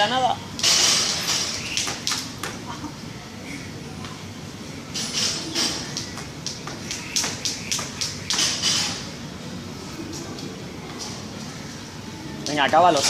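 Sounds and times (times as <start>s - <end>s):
jump rope whooshing slaps: 1.5s - 2.6s, 5.8s - 8.5s.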